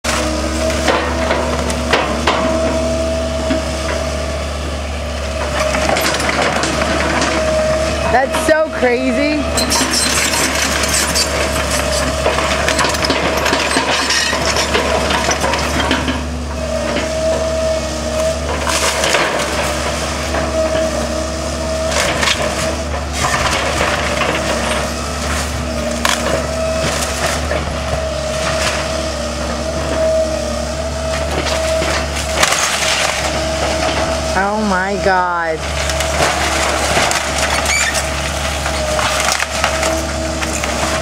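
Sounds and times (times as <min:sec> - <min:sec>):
excavator engine and hydraulics: 0:00.1 - 0:41.0
timber crunching and splintering: 0:08.9 - 0:16.3, 0:21.7 - 0:29.0, 0:30.9 - 0:41.0
wood cracking sharply: 0:31.4 - 0:34.1, 0:35.6 - 0:41.0.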